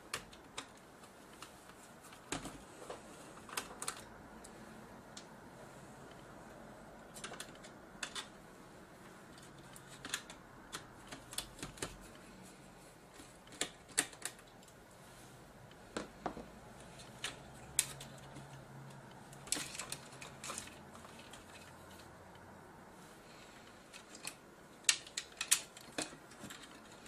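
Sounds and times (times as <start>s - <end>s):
fingers clicking and tapping plastic: 0.0s - 1.5s, 7.1s - 8.4s, 9.3s - 12.2s, 13.1s - 14.8s, 23.9s - 27.0s.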